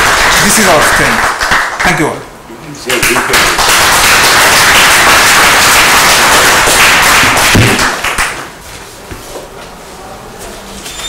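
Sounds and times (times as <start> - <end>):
audience applause: 0.0 - 2.1, 2.9 - 8.5.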